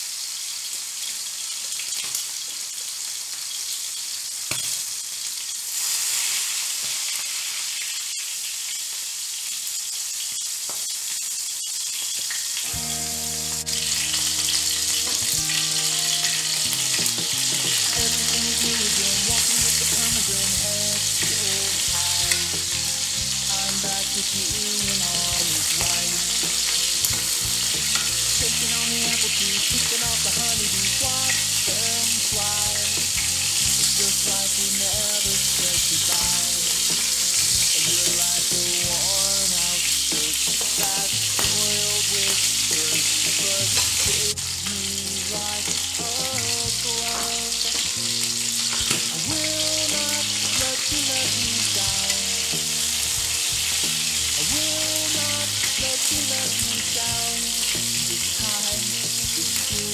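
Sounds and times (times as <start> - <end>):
frying in hot oil: 0.0 - 59.9
instrumental background music: 12.7 - 59.9.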